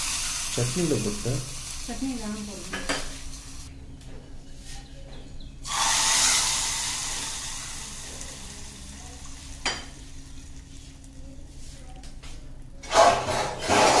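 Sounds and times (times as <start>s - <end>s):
hot oil sizzling: 0.0s - 3.7s, 5.6s - 11.5s.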